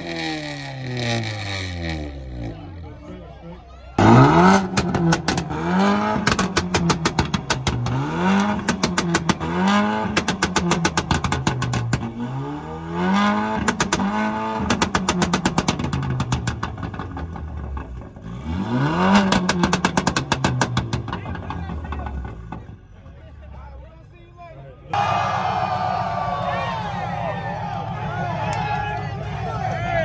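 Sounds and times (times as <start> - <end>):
car engine revving: 0.0 - 2.9, 4.0 - 22.9
exhaust crackling pops: 4.6 - 5.6, 6.2 - 12.1, 13.6 - 18.3, 19.1 - 22.7.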